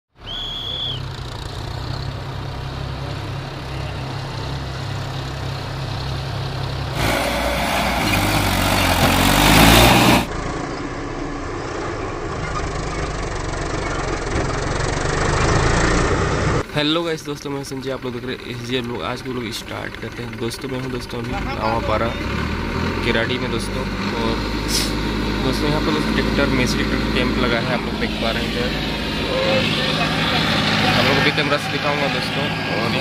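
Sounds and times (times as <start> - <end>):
tractor diesel engines running: 0.2 - 33.0
engine revving up: 6.8 - 16.6, 21.1 - 33.0
loud rushing noise: 6.9 - 10.3.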